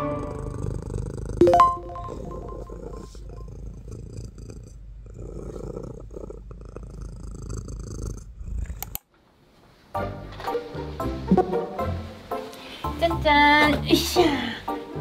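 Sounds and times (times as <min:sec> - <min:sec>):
cat purring: 0:00.0 - 0:09.0.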